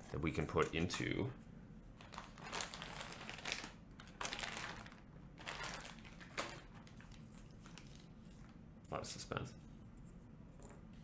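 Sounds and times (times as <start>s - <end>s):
plastic bag crinkling: 2.0s - 8.5s.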